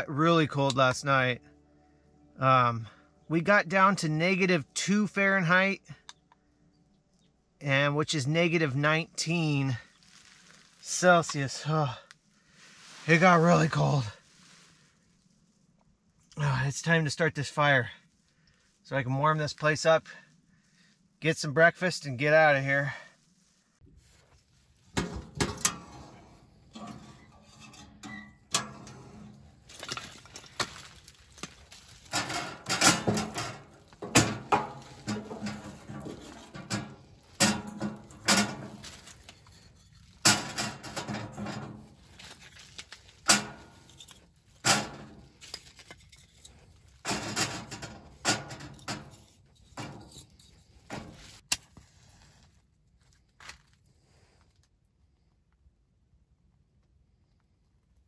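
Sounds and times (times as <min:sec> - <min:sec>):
rustling: 0:09.8 - 0:11.6, 0:12.2 - 0:16.3, 0:23.2 - 0:54.7
sticks knocking against metal stove: 0:32.1 - 0:39.2.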